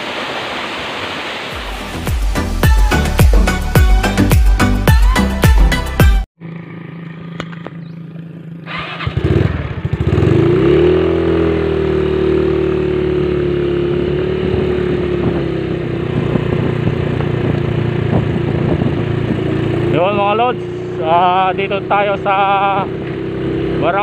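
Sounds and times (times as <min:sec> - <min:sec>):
small motorcycle engine: 0:06.4 - 0:24.0.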